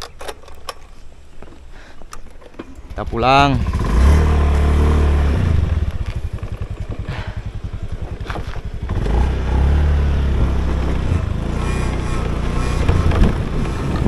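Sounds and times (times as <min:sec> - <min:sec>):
small motorcycle engine: 0:02.8 - 0:14.0.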